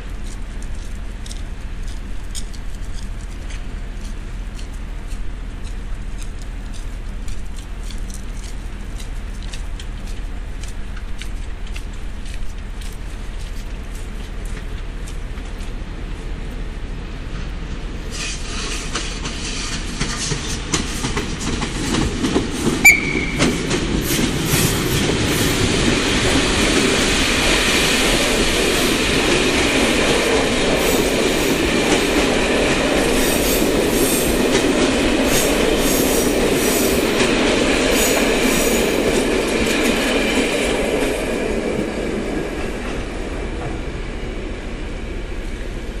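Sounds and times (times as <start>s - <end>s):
train wheels clattering over rails: 17.2s - 46.0s
brief squeal: 22.8s - 23.6s.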